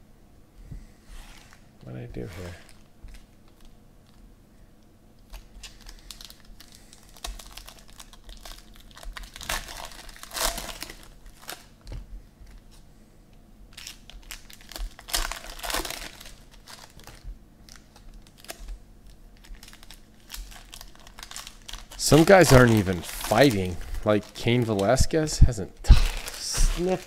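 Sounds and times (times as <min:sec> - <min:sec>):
foil wrappers crinkling: 0:05.2 - 0:12.8, 0:13.7 - 0:25.3, 0:25.9 - 0:27.0
packs torn open: 0:05.3 - 0:11.7, 0:13.7 - 0:18.7, 0:19.4 - 0:25.0, 0:25.9 - 0:27.0.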